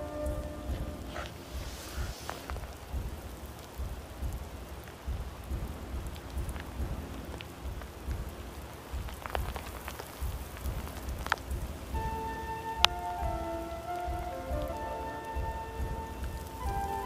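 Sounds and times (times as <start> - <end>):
music with held notes: 0.0 - 1.4, 11.9 - 17.0
rustling hiss: 0.0 - 17.0.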